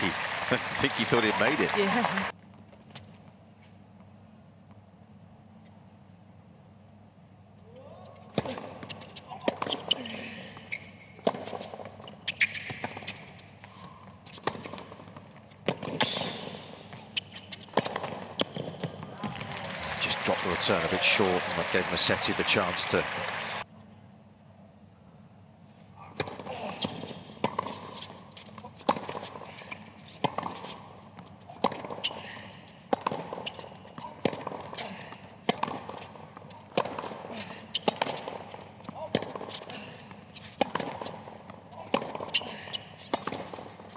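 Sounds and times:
tennis ball bouncing: 10.6s - 13.2s, 16.8s - 22.4s, 26.2s - 29.4s, 30.0s - 32.2s, 32.8s - 43.9s
racquet hitting tennis ball: 32.9s - 34.8s, 35.4s - 43.8s.

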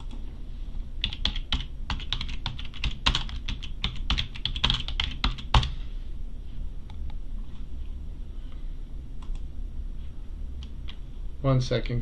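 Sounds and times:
typing on computer keyboard: 1.0s - 5.7s.

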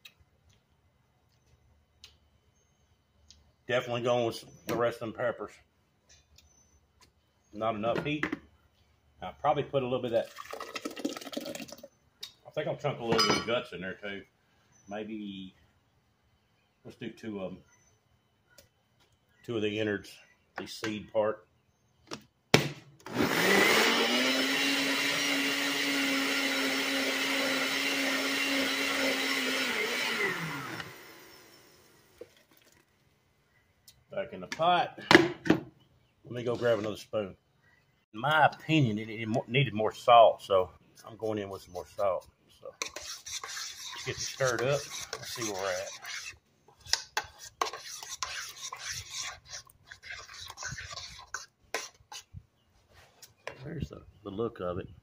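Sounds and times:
blender motor running: 23.1s - 32.1s
spoon scraping thick salsa: 40.9s - 53.4s.

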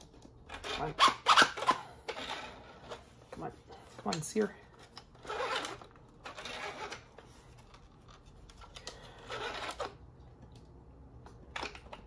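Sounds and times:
plastic toy gun priming scrape: 5.2s - 7.3s, 8.5s - 10.0s.

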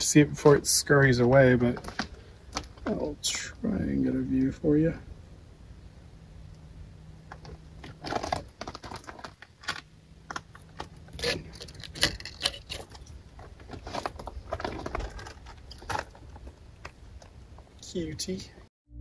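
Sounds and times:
gravel crunching underfoot: 7.3s - 17.7s.

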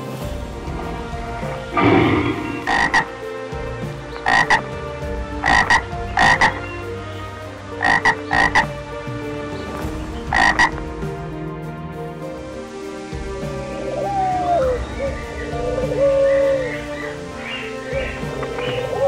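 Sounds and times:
frog croaking: 1.7s - 3.2s, 4.1s - 4.7s, 5.4s - 6.7s, 7.8s - 8.8s, 10.3s - 10.8s.

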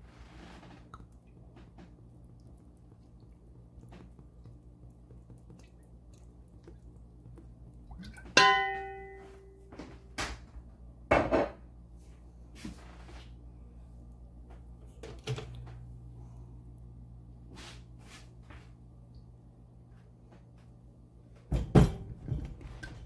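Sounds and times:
low steady hum: 0.0s - 23.0s
metal kitchenware clanging: 8.3s - 9.4s.

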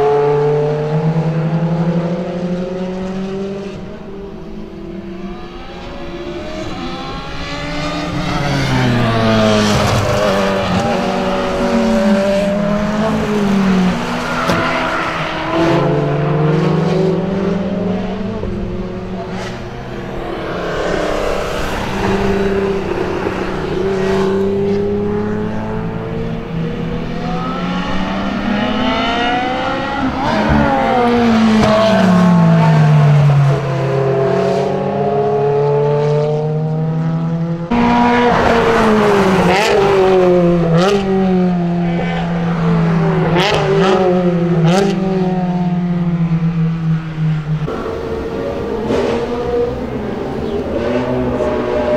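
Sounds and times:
sports car engines revving: 0.0s - 51.9s.

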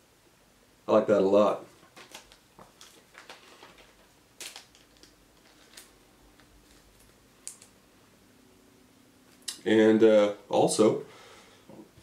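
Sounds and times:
trading cards rustling: 1.8s - 7.7s.

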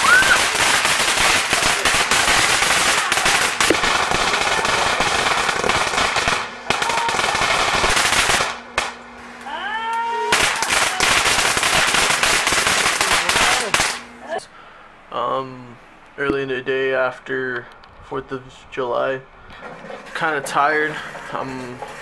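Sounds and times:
rising whistling tone: 0.0s - 0.4s
fireworks crackling: 0.0s - 9.4s, 10.3s - 14.2s.

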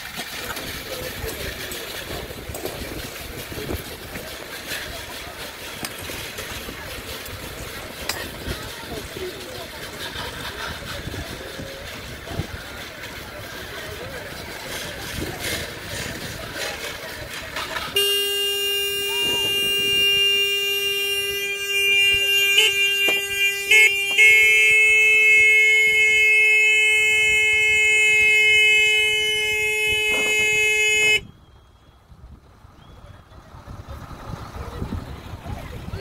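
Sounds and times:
steady horn-like tone: 17.9s - 31.4s.

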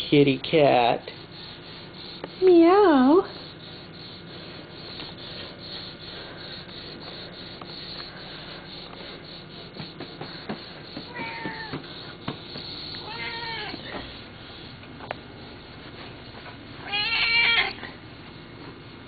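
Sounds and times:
cat meowing: 11.1s - 11.8s, 13.0s - 13.8s, 16.8s - 17.8s.

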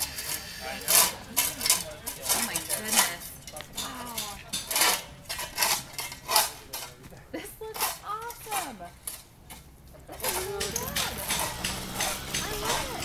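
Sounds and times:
metal tools scraping soil: 0.0s - 13.0s.

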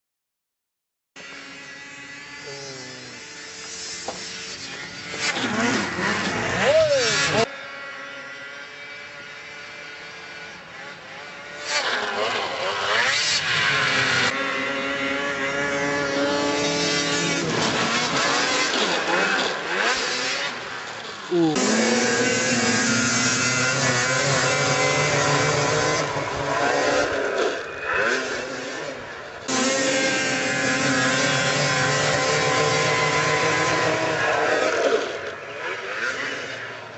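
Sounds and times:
snowmobile engine revving: 1.2s - 36.9s.

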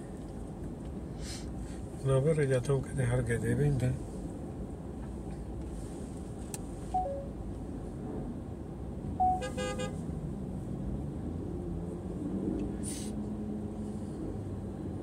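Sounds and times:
low hum of stopped traffic: 0.0s - 15.0s
car horn honk: 9.2s - 10.0s.

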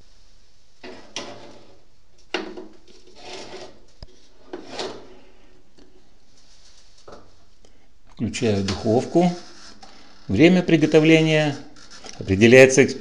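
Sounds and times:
metal tray scraping and rattling: 2.9s - 3.8s.

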